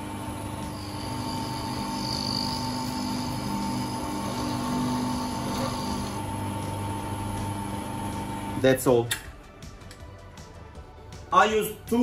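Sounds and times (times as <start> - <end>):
lathe motor humming: 0.0 - 8.6.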